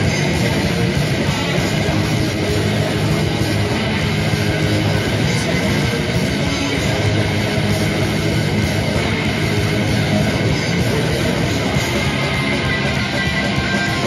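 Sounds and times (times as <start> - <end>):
bass guitar: 0.0 - 14.0
distorted electric guitars: 0.0 - 14.0
drum kit: 0.0 - 14.0.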